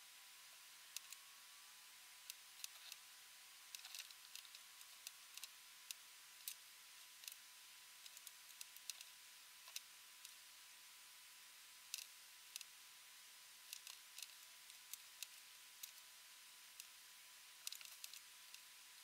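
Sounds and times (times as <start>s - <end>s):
faint hiss: 0.0s - 19.0s
small sharp clicks: 0.9s - 1.2s, 2.2s - 3.0s, 3.7s - 6.6s, 7.2s - 7.4s, 8.0s - 10.4s, 11.9s - 12.7s, 13.7s - 16.1s, 17.6s - 18.7s.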